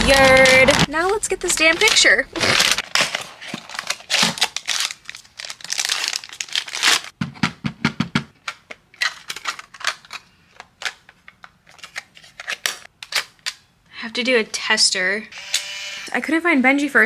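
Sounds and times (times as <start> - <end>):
film packaging tearing and crinkling: 0.0 - 7.2, 8.6 - 13.7.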